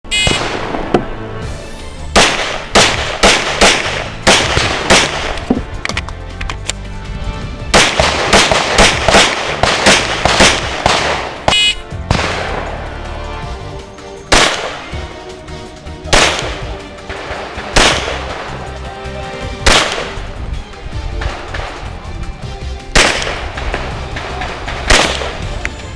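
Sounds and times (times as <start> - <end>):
background music: 0.0 - 25.9
rapid pistol shots: 0.1 - 0.8, 2.2 - 5.4, 7.7 - 12.6, 14.3 - 14.9, 16.1 - 18.5, 19.6 - 20.2, 23.0 - 25.5.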